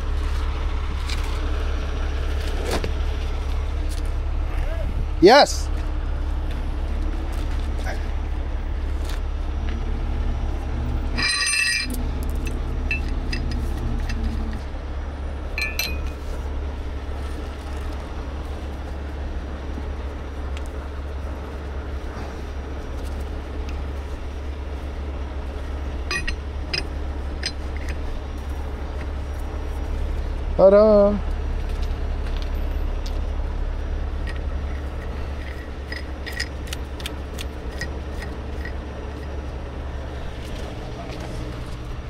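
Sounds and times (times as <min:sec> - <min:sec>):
low engine hum: 0:00.0 - 0:42.0
shackle clinking against metal: 0:11.0 - 0:14.6, 0:15.5 - 0:16.2, 0:26.0 - 0:28.1, 0:34.2 - 0:39.4
light clicks of shackle pin: 0:34.2 - 0:39.4.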